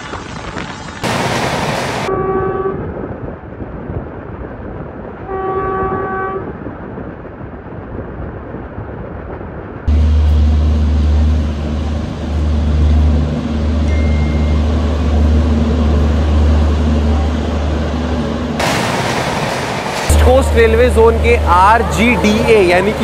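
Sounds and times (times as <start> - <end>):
rushing noise: 0.0 - 2.1, 9.7 - 23.0.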